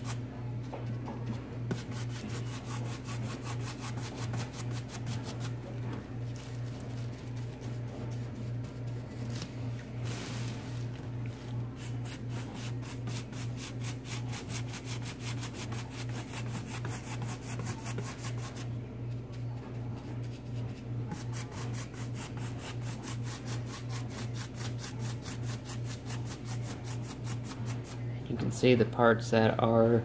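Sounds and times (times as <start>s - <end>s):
steady low hum: 0.0s - 30.0s
paintbrush bristles scratching: 1.7s - 5.6s, 21.1s - 28.0s.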